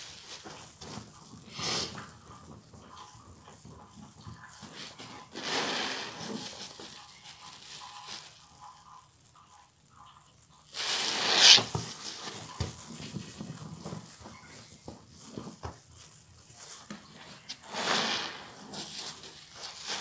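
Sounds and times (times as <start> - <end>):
foam crackling: 4.6 - 8.9, 10.7 - 13.4, 16.0 - 20.0
sponge squelching: 10.8 - 11.8.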